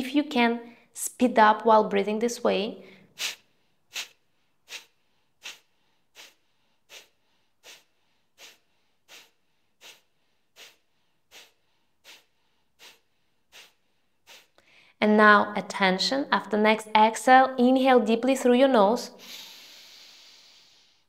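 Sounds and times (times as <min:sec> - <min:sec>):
quiet inhales: 0:02.8 - 0:15.0, 0:19.2 - 0:21.0
woman exhaling sharply through nose: 0:02.8 - 0:15.0, 0:19.2 - 0:21.0.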